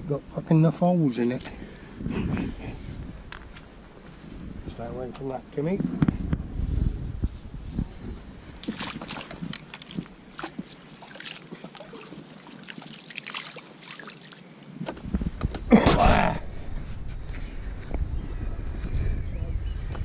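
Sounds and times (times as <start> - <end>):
pond water splashing: 8.6 - 14.8
water draining from net: 11.0 - 14.4.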